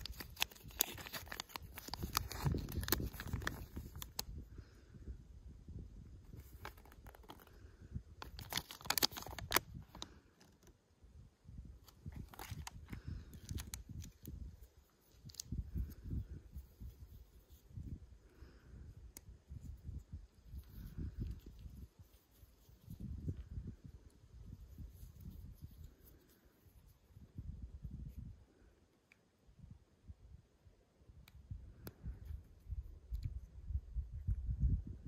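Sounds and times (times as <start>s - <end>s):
paper crinkling and rustling: 0.0s - 4.2s, 6.3s - 7.5s, 8.2s - 10.7s, 11.8s - 16.0s.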